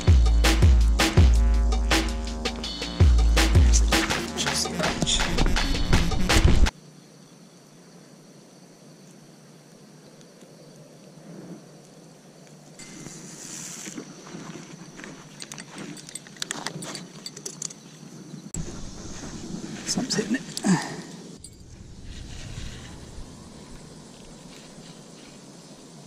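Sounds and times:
music: 0.0 - 6.7
faint outdoor hiss: 6.7 - 26.0
rustles and clicks of handled gear: 12.5 - 18.1.

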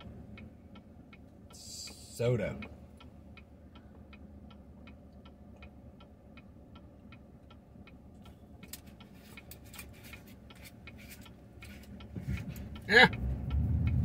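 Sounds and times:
turn signal ticking: 0.0 - 14.0
clicks and rustles: 8.6 - 12.8.

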